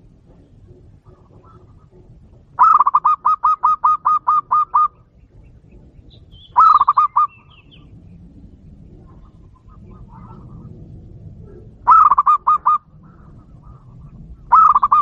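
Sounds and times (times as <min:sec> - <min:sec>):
dove calling: 0:00.0 - 0:15.0
faint high bird chirps: 0:04.4 - 0:07.9.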